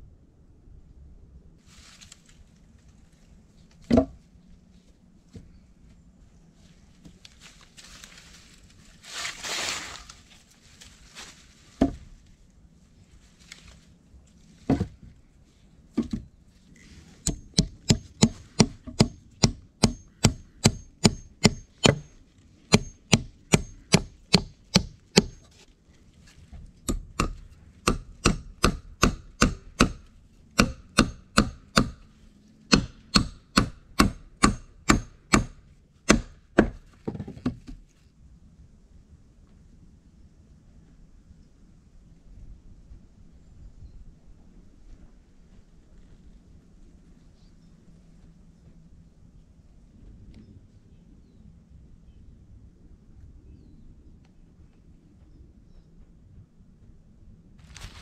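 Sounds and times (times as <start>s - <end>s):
rustle: 1.5s - 17.4s, 24.6s - 27.9s, 32.0s - 32.7s, 35.6s - 52.4s, 53.0s - 58.0s
axe chopping into a log: 17.2s - 25.5s, 26.9s - 30.0s, 30.6s - 32.0s, 32.7s - 36.8s.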